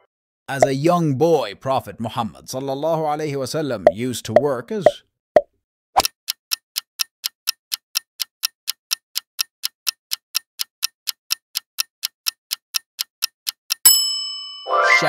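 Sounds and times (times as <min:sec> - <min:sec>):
clock-like timer ticks: 0:06.0 - 0:14.0.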